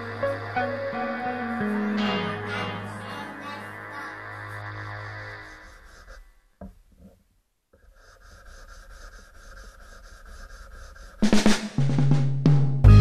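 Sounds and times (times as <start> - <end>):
background music: 0.0 - 5.5, 12.8 - 13.0.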